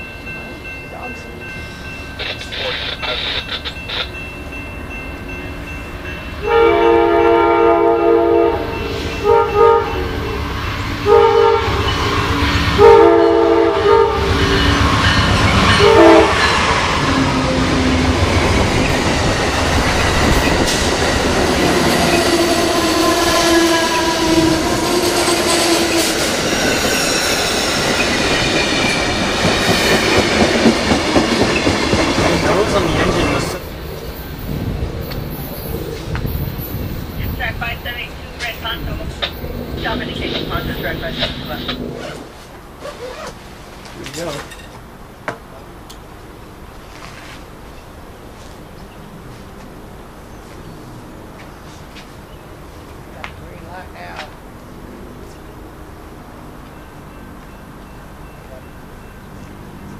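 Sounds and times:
train horn blasts: 0:06.4 - 0:17.8, 0:21.7 - 0:26.3
train wheels clacking over rails: 0:14.2 - 0:23.4, 0:24.2 - 0:33.6, 0:34.3 - 0:42.3.

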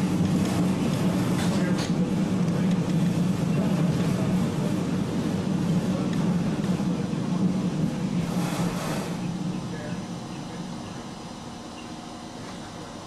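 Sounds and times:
streetcar rumbling on track: 0:00.0 - 0:13.0.

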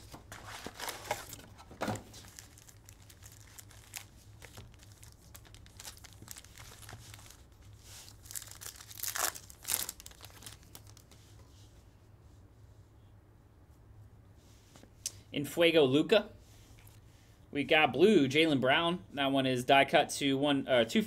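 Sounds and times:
foil wrapper crinkling: 0:00.2 - 0:11.1
foil wrapper tearing: 0:02.2 - 0:07.4, 0:08.0 - 0:11.0.

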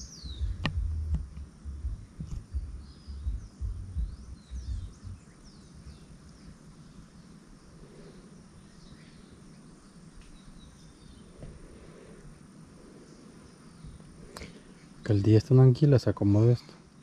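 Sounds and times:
birds chirping: 0:00.0 - 0:17.0
outdoor background noise: 0:00.0 - 0:17.0
thumps on microphone: 0:00.4 - 0:04.9.

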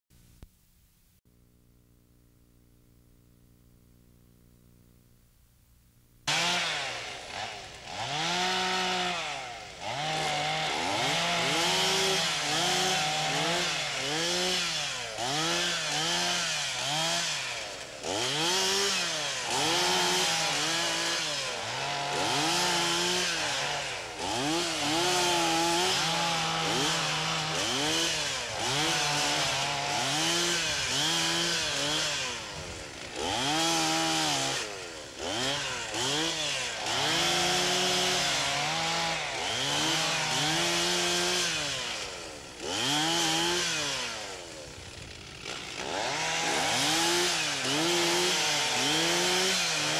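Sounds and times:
chainsaw revving: 0:06.3 - 0:49.9.

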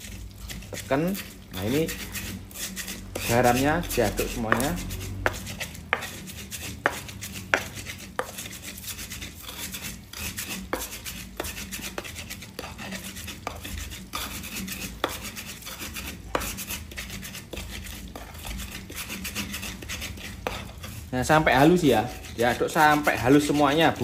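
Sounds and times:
stone pestle grinding paste: 0:00.0 - 0:24.0
pestle knocking against mortar: 0:03.2 - 0:06.2, 0:06.8 - 0:08.5.

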